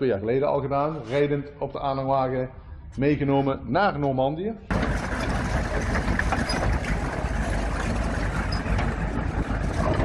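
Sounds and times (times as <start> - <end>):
tank engines rumbling: 4.7 - 10.0.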